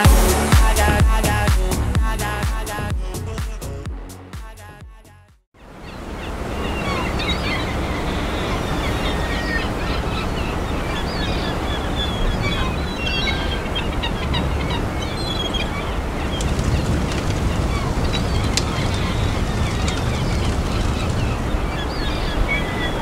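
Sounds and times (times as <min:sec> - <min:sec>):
birds chirping: 0:05.6 - 0:23.0
sea: 0:05.6 - 0:23.0
wind: 0:05.6 - 0:23.0.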